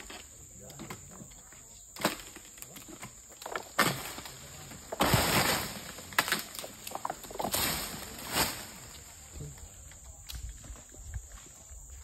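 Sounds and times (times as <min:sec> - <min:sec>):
palm leaves rustling: 0:00.0 - 0:12.0
sickle cracking palm frond: 0:02.0 - 0:10.5.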